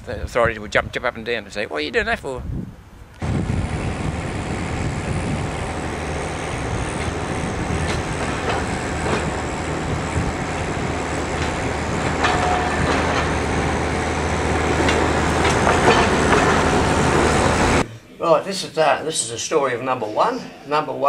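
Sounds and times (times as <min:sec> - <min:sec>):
tram running noise: 0:03.2 - 0:17.8
wheels clicking on rails: 0:03.2 - 0:17.8.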